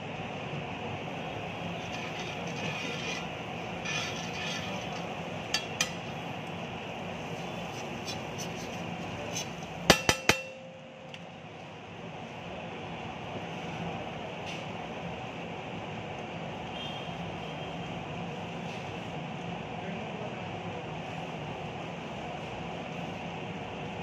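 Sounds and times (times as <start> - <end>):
spatula spreading on steel griddle: 1.3 - 6.4, 7.2 - 10.5
spatula striking steel: 1.9 - 6.2, 9.8 - 11.0.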